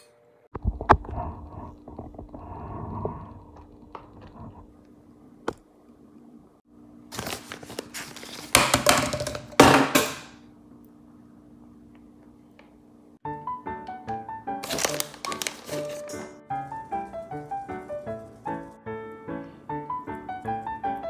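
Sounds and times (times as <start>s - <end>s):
faint steady hum: 0.0s - 8.2s, 10.3s - 13.2s
crinkling packaging rustling: 7.1s - 8.8s, 14.6s - 18.6s.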